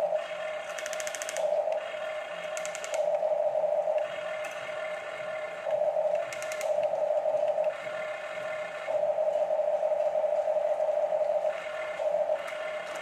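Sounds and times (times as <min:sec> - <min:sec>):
toy excavator motors whining: 0:00.0 - 0:13.0
rapid clicks: 0:00.6 - 0:03.3, 0:05.7 - 0:07.8.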